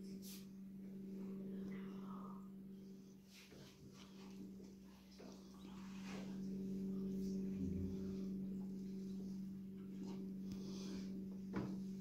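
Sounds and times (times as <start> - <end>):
steady low hum: 0.0 - 12.0
faint rustles: 3.1 - 12.0
soft low thud: 11.4 - 12.0.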